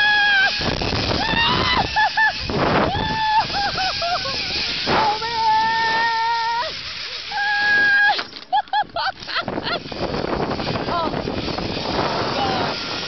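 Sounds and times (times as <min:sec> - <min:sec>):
woman screaming and yelping: 0:00.0 - 0:00.6, 0:01.2 - 0:09.4
wind noise: 0:00.0 - 0:08.2, 0:08.8 - 0:13.0.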